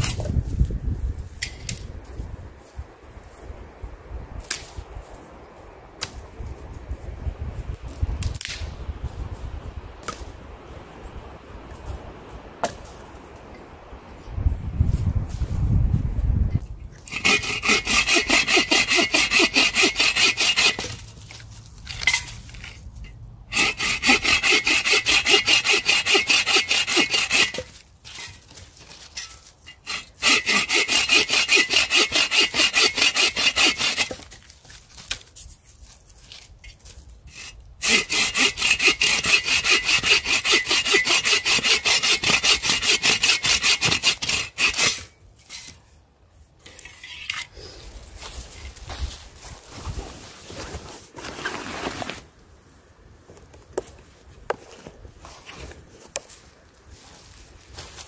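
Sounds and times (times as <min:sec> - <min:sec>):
hand saw cutting branch: 0:17.0 - 0:22.7, 0:23.5 - 0:35.2, 0:37.3 - 0:45.8.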